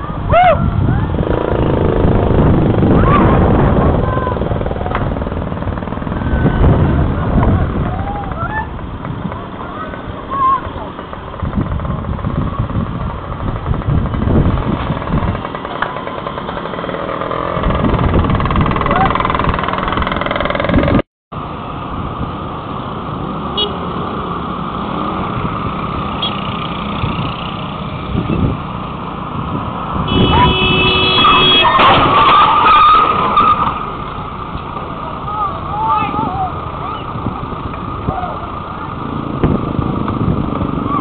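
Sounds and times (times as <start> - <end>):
people's voices: 0.0 - 5.2, 6.2 - 11.2, 34.7 - 40.2
motorcycles passing: 0.0 - 41.0.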